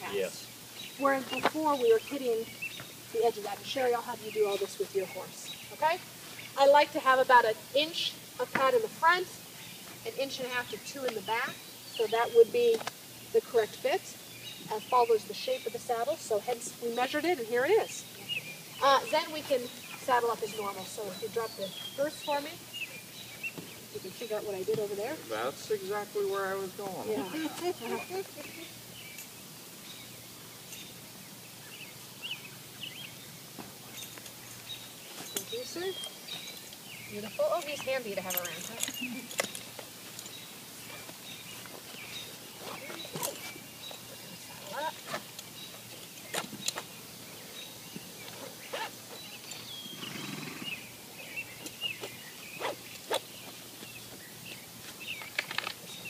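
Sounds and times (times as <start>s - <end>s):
steady high hiss: 0.0s - 56.0s
bird chirps: 9.5s - 25.0s, 31.6s - 56.0s.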